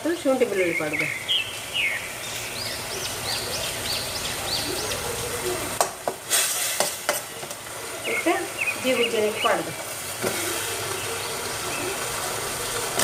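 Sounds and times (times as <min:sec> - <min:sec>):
bird chirping: 0:00.4 - 0:05.7, 0:07.8 - 0:09.8
brief burst of hiss: 0:06.3 - 0:06.9.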